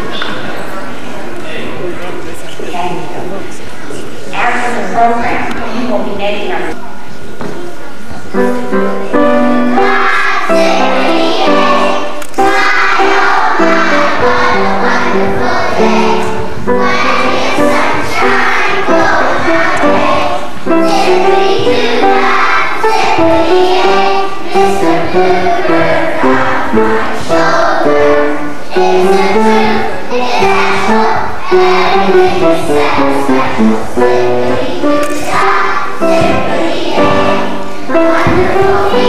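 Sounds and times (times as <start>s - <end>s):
children singing: 9.1s - 39.0s.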